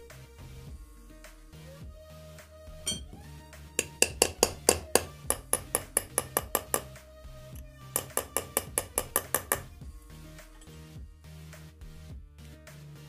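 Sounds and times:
hammer tapping on metal knife: 2.9 - 3.1, 3.8 - 6.9, 8.0 - 9.7.

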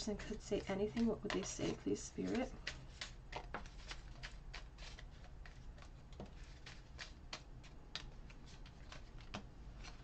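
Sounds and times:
cards being shuffled: 2.2 - 10.0.

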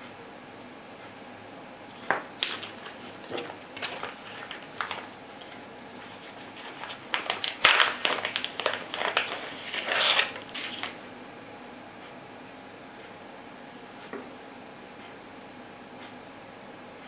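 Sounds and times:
plastic bag crinkling: 1.9 - 11.0.

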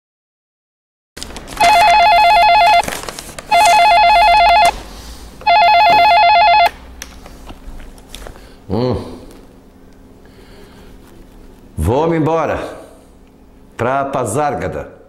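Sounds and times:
telephone ringing electronic trill: 1.6 - 2.9, 3.5 - 4.8, 5.4 - 6.7.

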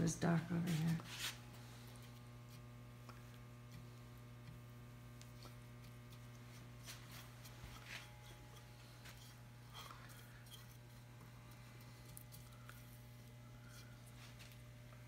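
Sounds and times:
low electrical hum: 0.0 - 15.0
brush strokes on wood: 0.5 - 2.6, 5.4 - 11.0.

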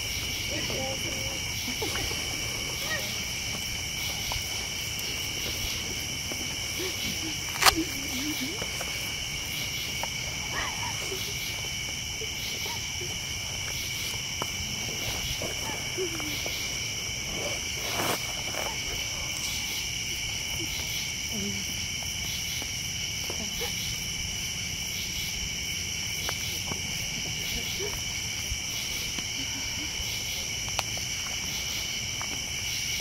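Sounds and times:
night insects trilling: 0.0 - 33.0.

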